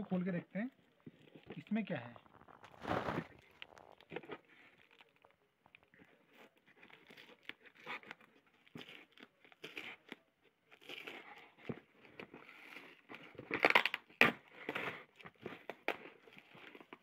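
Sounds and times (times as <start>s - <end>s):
packing tape peeled off cardboard: 2.6s - 4.3s, 12.1s - 17.0s.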